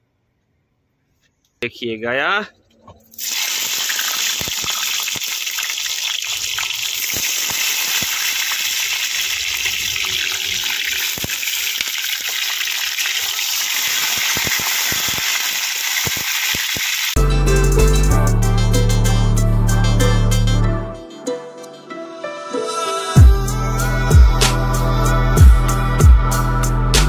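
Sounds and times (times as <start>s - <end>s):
running water gushing: 3.1s - 17.2s.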